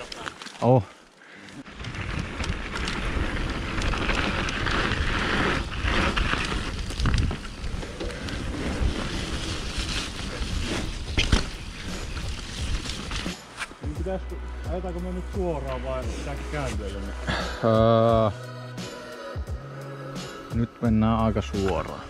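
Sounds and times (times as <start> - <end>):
bike tyre rumble: 0.0 - 13.9
bike rattling and clicking: 1.4 - 13.8.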